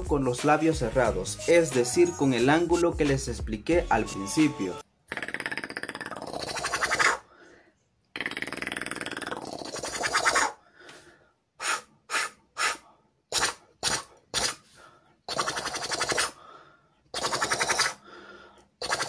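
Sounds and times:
beatboxer rattling scratch: 5.2s - 7.2s, 8.2s - 10.6s, 11.6s - 14.7s, 15.3s - 16.4s, 17.1s - 18.0s, 18.8s - 19.0s.

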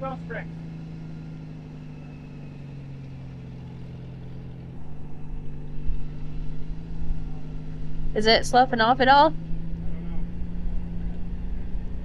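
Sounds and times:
car engine running under load: 0.0s - 12.0s
low rumble: 3.6s - 12.0s.

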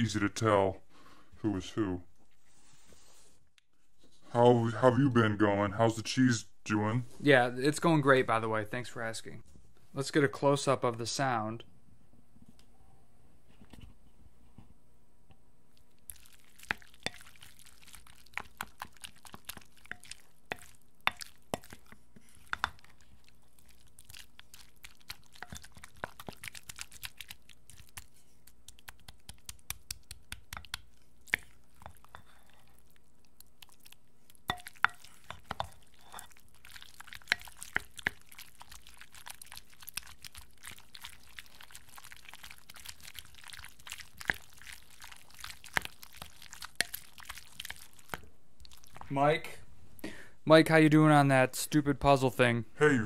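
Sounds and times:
spoon stirring sticky food: 15.8s - 49.1s.

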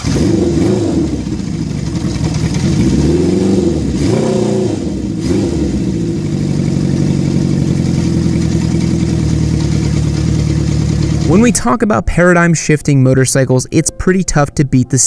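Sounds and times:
motorcycle engine revving and idling: 0.0s - 11.6s.

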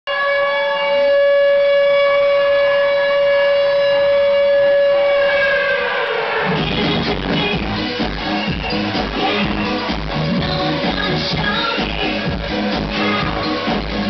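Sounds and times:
siren-like tone: 0.1s - 10.1s
dance beat: 6.4s - 14.0s.

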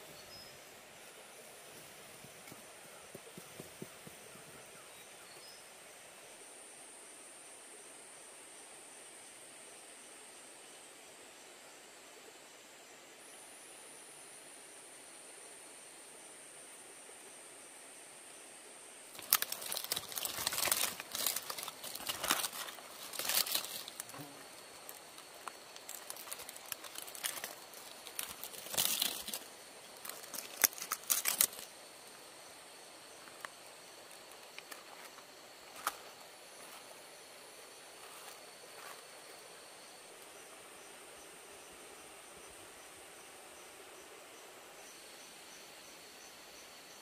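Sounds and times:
high insect drone: 0.0s - 47.0s
leaf wrapping crinkling: 19.1s - 31.8s, 33.2s - 36.8s.

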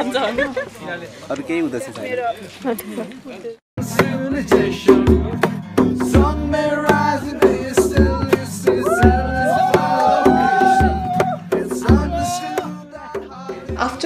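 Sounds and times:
music with steady drumbeat: 3.8s - 14.0s.

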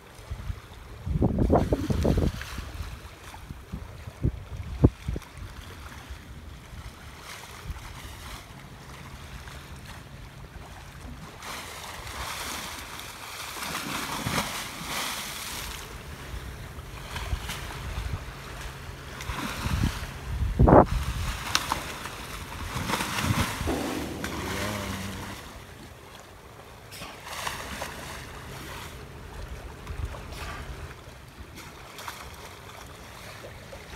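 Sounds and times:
sea water rushing and splashing: 0.0s - 33.9s
wind buffeting microphone: 0.2s - 11.4s, 15.8s - 26.8s
heavy low thumps: 23.7s - 26.0s.

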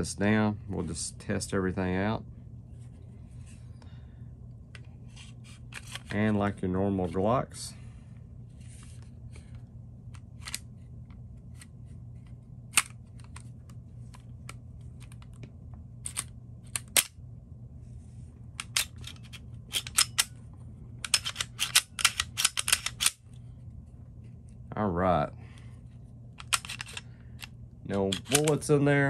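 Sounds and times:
steady low hum: 0.0s - 29.0s
pistol mechanism clicks: 16.0s - 17.2s, 18.6s - 20.4s, 21.0s - 23.2s, 26.4s - 28.7s.

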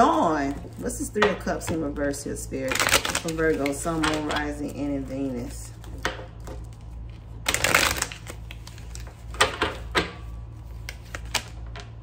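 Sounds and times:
cards being shuffled: 2.7s - 9.8s, 10.6s - 12.0s.

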